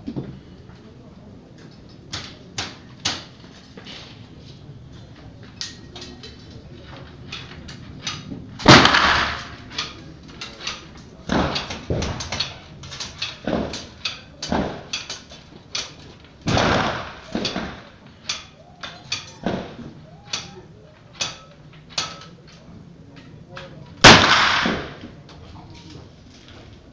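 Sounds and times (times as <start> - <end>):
rifle shots echoing: 8.6 - 9.8, 16.4 - 17.9, 24.0 - 25.0.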